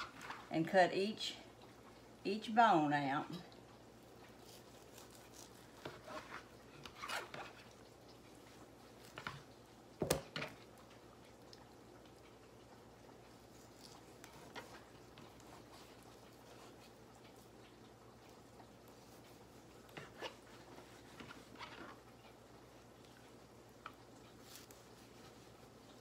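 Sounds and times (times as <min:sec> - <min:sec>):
knife slicing and scraping meat: 0:04.3 - 0:07.8, 0:13.4 - 0:17.0, 0:19.1 - 0:22.1.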